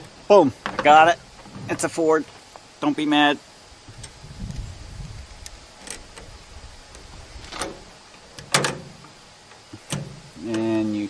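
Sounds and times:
wind rumble on microphone: 3.8s - 7.9s.

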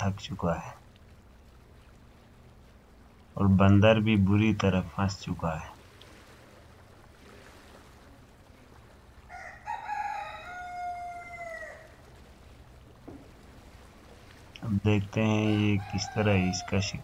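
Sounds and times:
faint low hum: 0.0s - 17.0s
long animal call: 9.3s - 12.1s.

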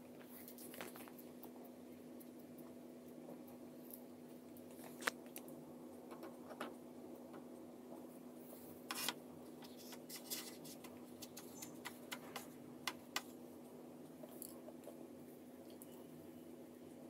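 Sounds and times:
steady low hum: 0.0s - 17.0s
hands rustling in bread crumbs: 8.0s - 13.4s.

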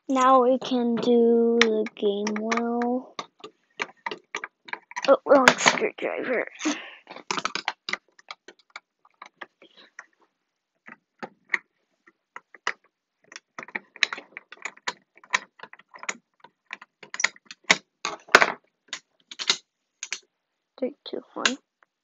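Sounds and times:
metallic clicks and rattles: 0.0s - 6.0s, 6.6s - 10.2s, 12.4s - 20.2s.

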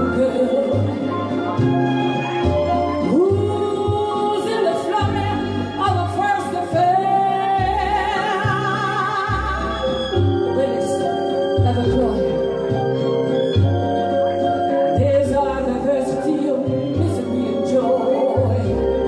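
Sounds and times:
woman singing into microphone: 0.0s - 1.4s, 3.0s - 12.4s, 14.8s - 19.0s
backing track with bass: 0.0s - 19.0s.

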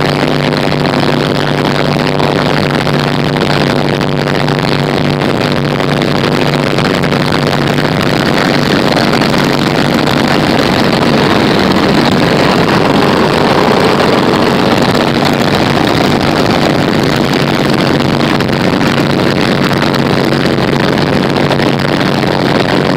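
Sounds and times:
propeller engine drone: 0.0s - 22.9s
rushing air: 7.6s - 22.9s.

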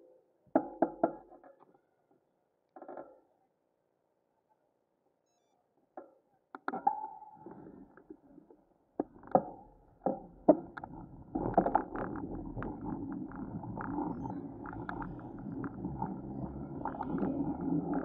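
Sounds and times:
low rolling rumble: 9.8s - 18.0s.

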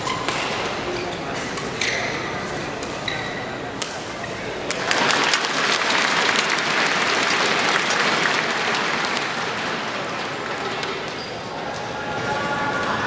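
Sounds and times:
crowd applause: 4.8s - 11.1s.

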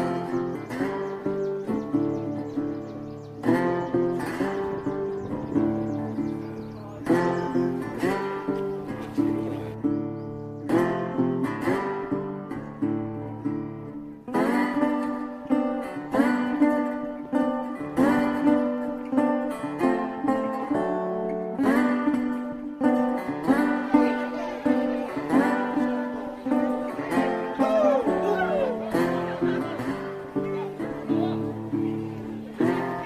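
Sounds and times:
plucked guitar tune: 0.0s - 33.0s.

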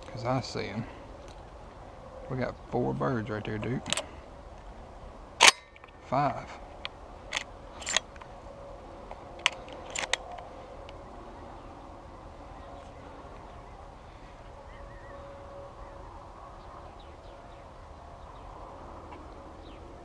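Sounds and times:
faint steady hum: 0.0s - 20.0s
sharp clicks: 9.4s - 11.0s
wavering bird chirp: 10.2s - 18.6s.

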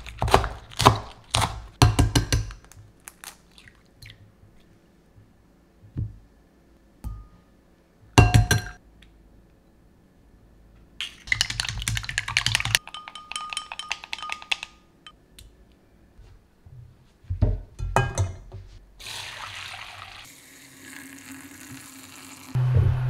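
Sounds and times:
chopsticks beating eggs in glass bowl: 11.0s - 14.8s.

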